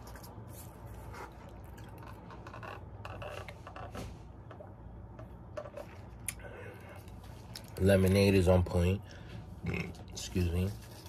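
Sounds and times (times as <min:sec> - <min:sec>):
man chewing: 0:00.0 - 0:02.6.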